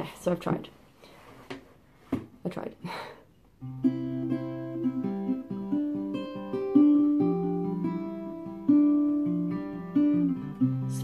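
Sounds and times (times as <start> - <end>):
acoustic guitar notes: 3.6 - 11.0.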